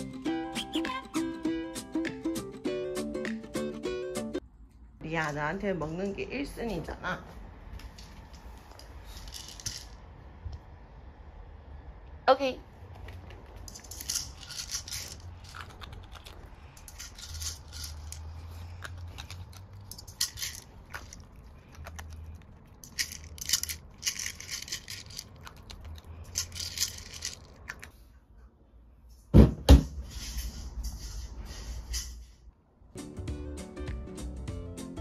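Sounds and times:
dog crunching dry kibble: 12.8 - 28.0
heavy thumps: 29.3 - 30.0.

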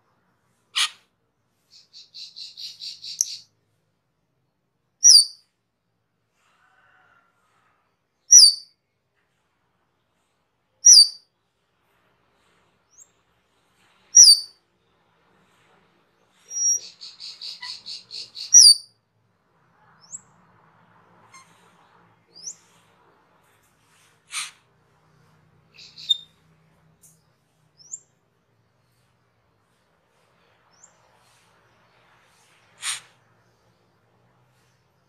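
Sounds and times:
bird chattering trill: 1.8 - 3.4, 16.5 - 18.8, 25.8 - 26.2
bird whistled notes: 16.5 - 18.8.

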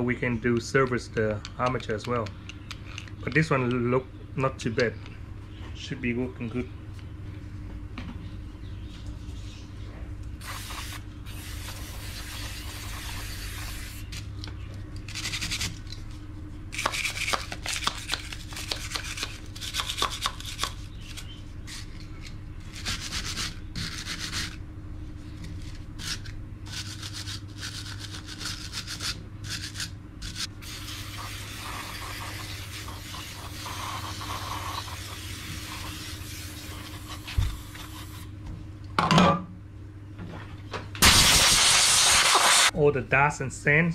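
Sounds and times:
aerosol can spraying: 10.4 - 14.0, 30.6 - 38.2, 41.0 - 42.7.

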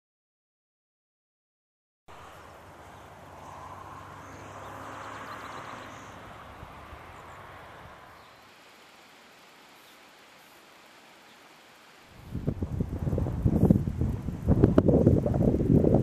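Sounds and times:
hiss: 2.1 - 16.0
low hum: 12.1 - 16.0.

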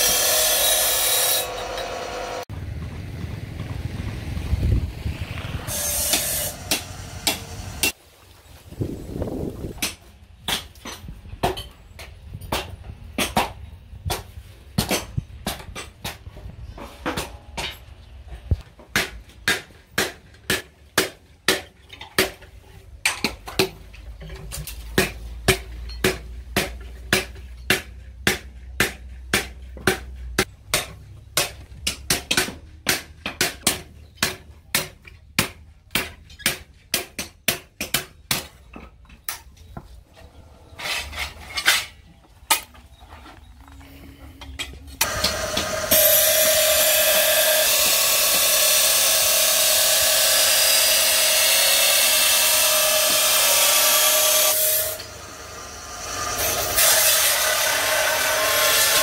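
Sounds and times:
hammer striking steel on anvil: 5.7 - 8.0.

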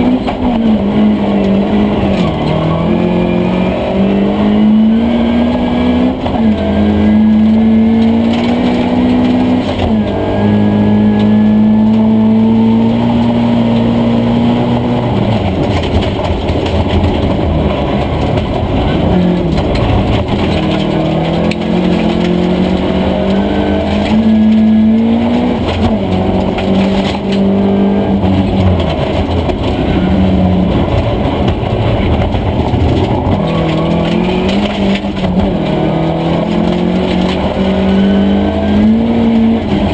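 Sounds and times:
rally car engine revving hard: 0.0 - 39.9.

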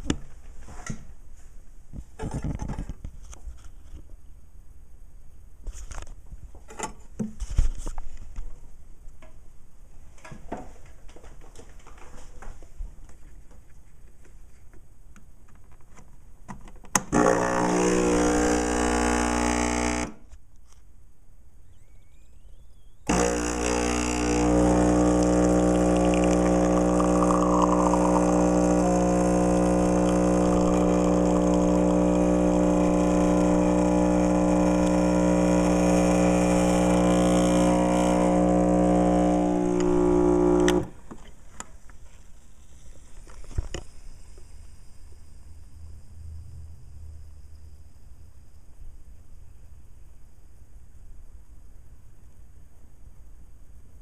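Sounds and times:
espresso machine pump buzzing: 17.1 - 20.2, 23.1 - 41.0.

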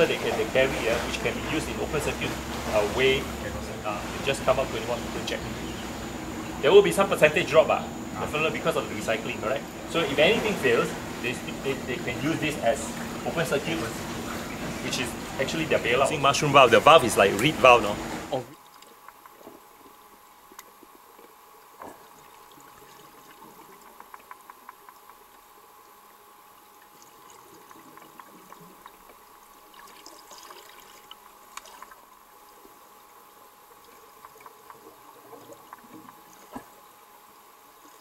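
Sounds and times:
steady hiss: 0.0 - 22.1
underwater bubbling: 0.0 - 38.0
water trickling: 0.0 - 38.0.

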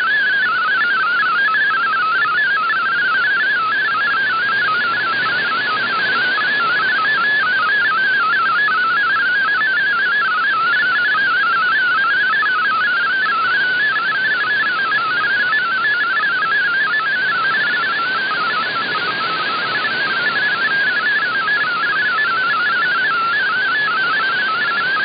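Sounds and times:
warbling digital data tones: 0.0 - 25.0
radio band hiss: 4.3 - 7.8.

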